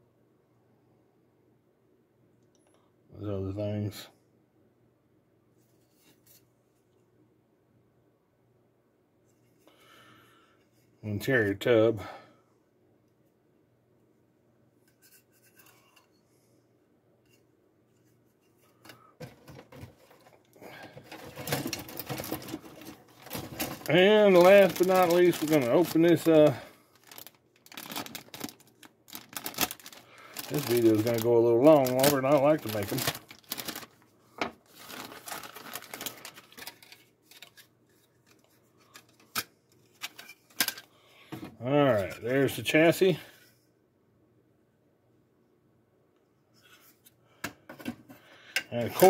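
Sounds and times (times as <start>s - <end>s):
plastic bag crinkling: 19.8s - 38.4s.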